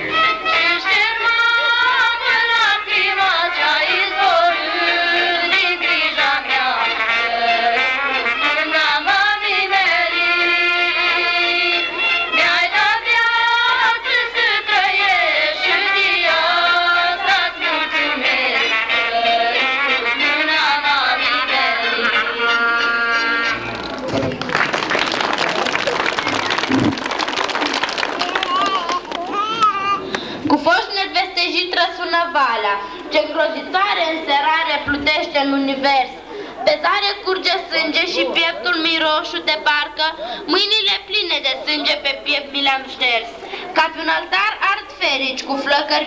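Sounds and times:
folk ensemble playing: 0.0 - 30.6.

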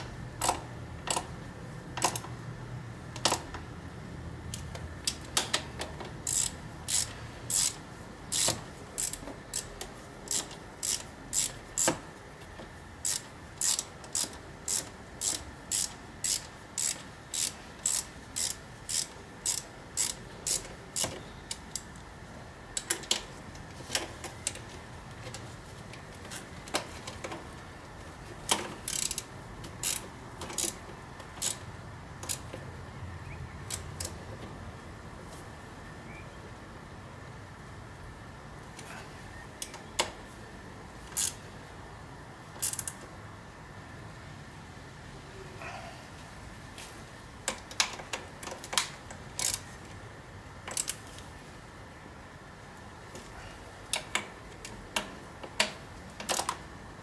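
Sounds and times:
ratchet pawl clicks: 0.3 - 2.4, 4.4 - 12.0, 13.0 - 22.0, 28.4 - 32.6, 33.6 - 34.2, 41.1 - 41.4, 42.6 - 43.0, 47.5 - 49.7, 50.6 - 51.3.

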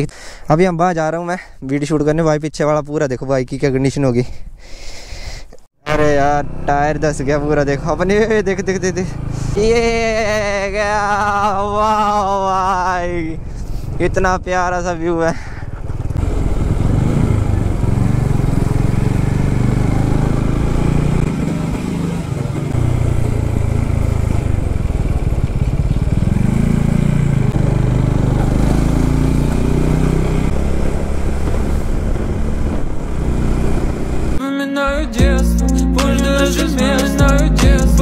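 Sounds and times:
motorcycle engine accelerating: 5.9 - 13.3, 15.7 - 34.4.

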